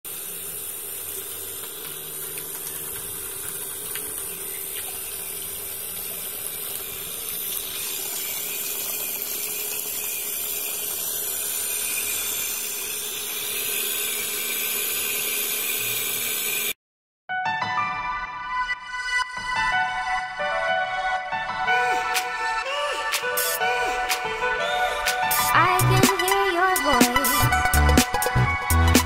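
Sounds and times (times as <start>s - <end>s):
water pump humming: 0.0s - 16.8s
water pouring and splashing: 0.1s - 10.6s.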